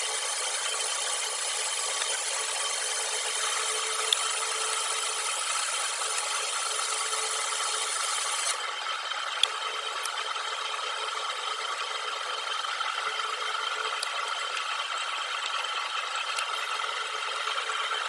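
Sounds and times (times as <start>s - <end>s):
drill cutting metal: 0.0s - 18.0s
lathe running: 0.0s - 18.0s.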